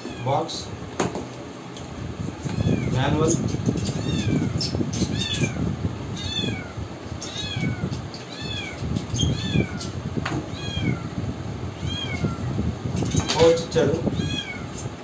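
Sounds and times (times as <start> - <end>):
cat mewing: 0.0 - 0.7, 2.4 - 12.6, 14.0 - 14.9.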